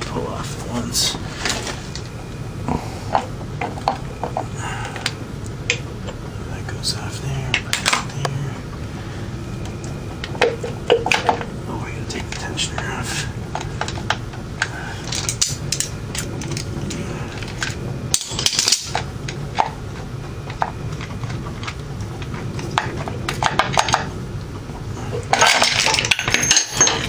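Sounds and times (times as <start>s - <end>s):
metal parts clicking and clinking: 13.5s - 19.7s, 25.1s - 27.0s
chain jangling: 25.3s - 27.0s.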